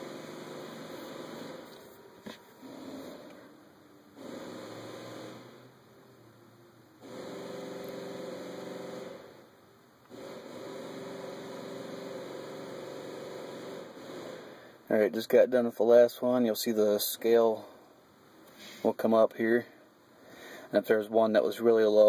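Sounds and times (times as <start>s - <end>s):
electric fuel pump humming: 0.0s - 15.0s.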